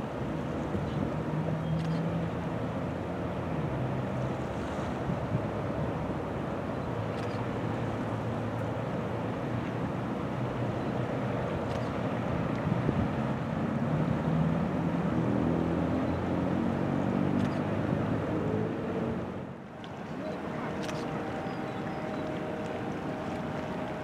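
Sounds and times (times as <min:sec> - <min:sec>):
boat engine hum: 0:00.0 - 0:24.0.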